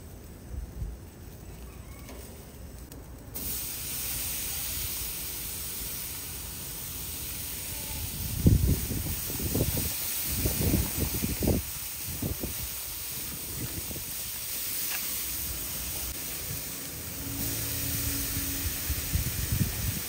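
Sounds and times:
meat sizzling on a grill: 0.0s - 20.0s.

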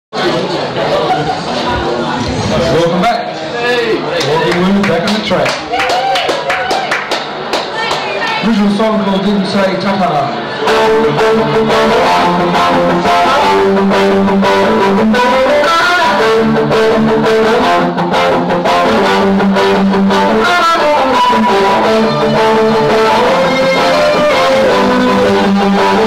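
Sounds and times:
electric guitars: 9.2s - 26.0s
bass guitar: 10.6s - 26.0s.

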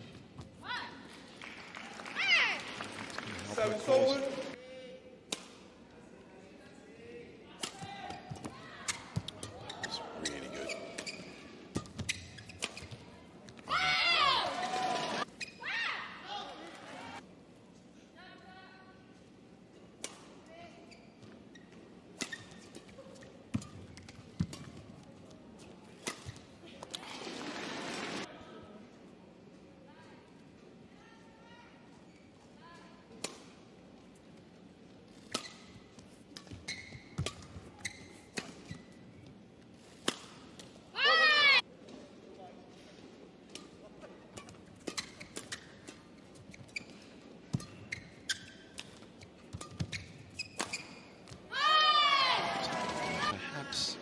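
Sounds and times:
shoes squeaking on court: 8.1s - 13.7s, 14.6s - 15.7s, 20.8s - 25.0s, 31.9s - 32.6s, 35.0s - 40.5s, 44.1s - 51.5s
rackets hitting shuttlecock: 48.7s - 51.4s.

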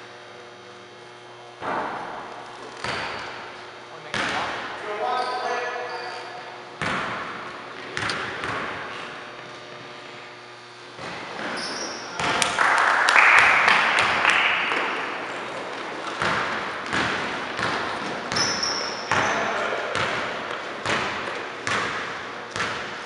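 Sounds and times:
basketball dribbling on wood floor: 8.0s - 8.8s, 15.6s - 23.0s
crowd cheering: 12.3s - 16.0s.

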